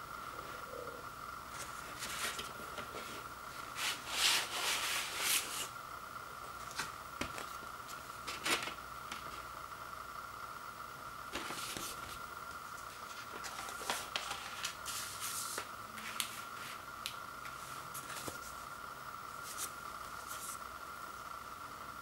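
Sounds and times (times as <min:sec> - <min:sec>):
high-pitched background whine: 0:00.0 - 0:22.0
paper sleeve rustling: 0:01.6 - 0:05.7, 0:11.3 - 0:12.2, 0:12.8 - 0:16.8, 0:17.5 - 0:18.7, 0:19.4 - 0:20.6
paper crinkles: 0:12.8 - 0:16.7.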